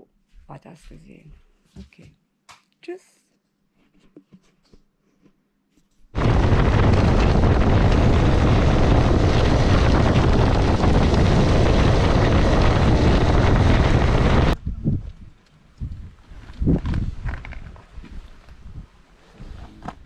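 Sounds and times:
wind buffeting microphone: 6.2 - 19.0.

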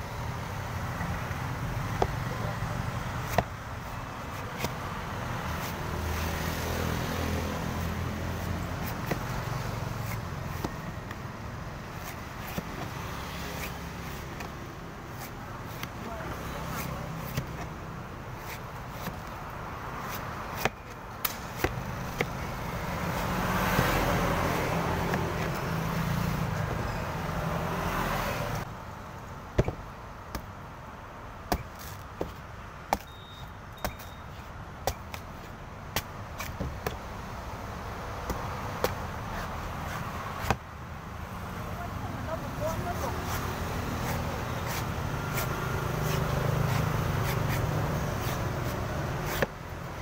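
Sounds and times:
knife chopping coconut husk: 3.1 - 3.6, 4.3 - 11.2, 12.0 - 25.6, 31.4 - 33.1, 33.8 - 37.0, 38.2 - 40.6, 42.7 - 49.6
passing vehicle engine: 5.4 - 10.6, 21.4 - 28.7.

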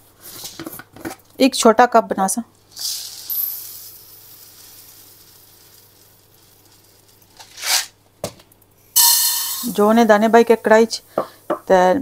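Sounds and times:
grains pouring into a cup: 2.8 - 8.0.

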